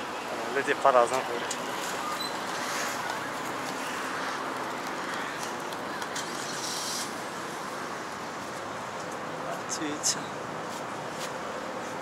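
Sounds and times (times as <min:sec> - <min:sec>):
distant traffic hum: 0:00.0 - 0:12.0.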